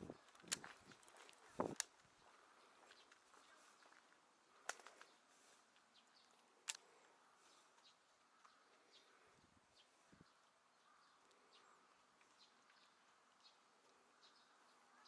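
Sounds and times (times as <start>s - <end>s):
sharp clicks: 0.2s - 0.7s, 6.2s - 6.9s.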